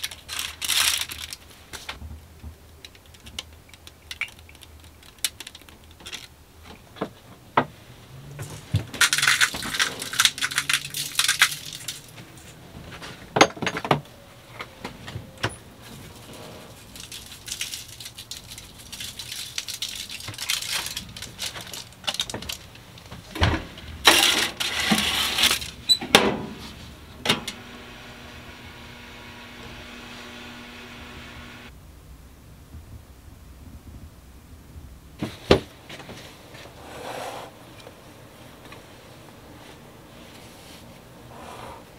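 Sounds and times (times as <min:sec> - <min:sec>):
toaster oven humming: 0:27.2 - 0:31.7.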